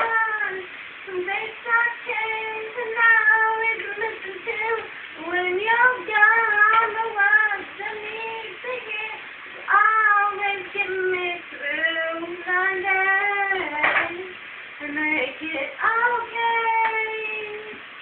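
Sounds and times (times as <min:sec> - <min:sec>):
woman singing unaccompanied: 0:00.0 - 0:17.9.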